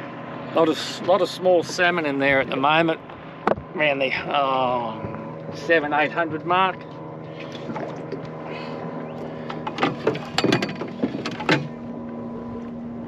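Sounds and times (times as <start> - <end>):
boat motor humming: 0.0 - 13.0
sharp knocks and clatter: 3.4 - 3.7, 9.5 - 11.8.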